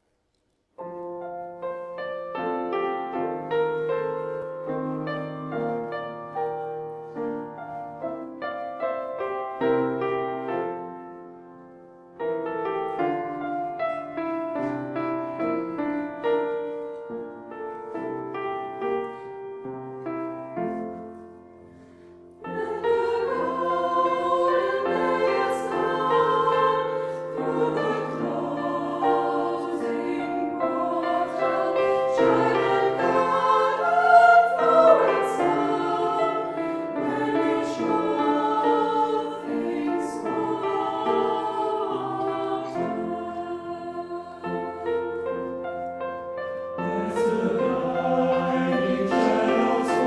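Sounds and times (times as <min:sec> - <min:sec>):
piano accompaniment: 0:00.8 - 0:50.0
mixed choir singing: 0:22.4 - 0:45.6, 0:46.6 - 0:50.0.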